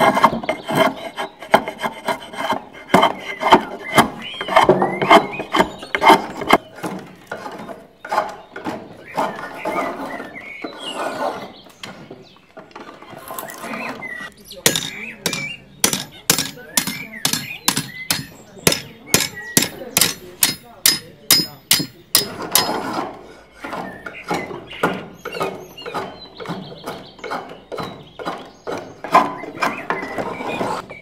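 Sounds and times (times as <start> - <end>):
hammer striking metal on anvil: 14.7 - 22.8.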